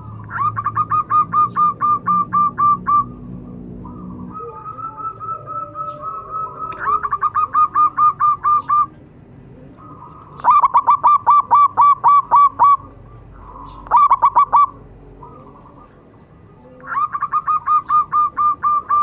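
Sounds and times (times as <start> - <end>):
dove cooing: 0.0 - 19.0.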